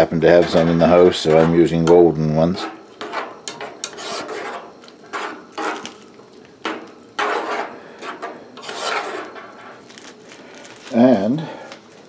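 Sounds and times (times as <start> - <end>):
metal spoon scraping a saucepan: 0.4 - 5.9, 6.7 - 9.8.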